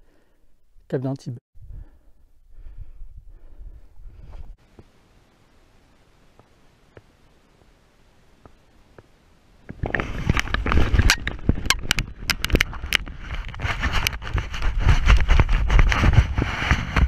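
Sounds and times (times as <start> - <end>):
hurried footsteps on stony ground: 9.7 - 17.0
wind rushing on microphone: 9.7 - 17.0.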